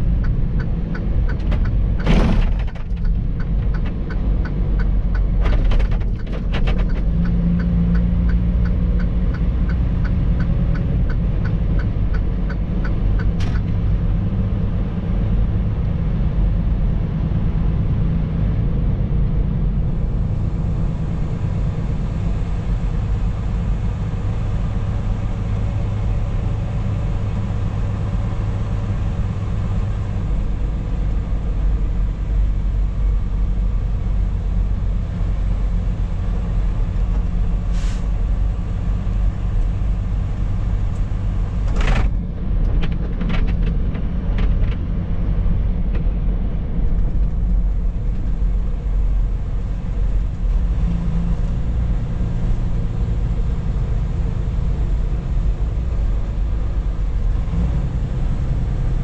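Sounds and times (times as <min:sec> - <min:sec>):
truck diesel engine rumbling: 0:00.0 - 0:59.0
short air hisses: 0:37.7 - 0:38.1.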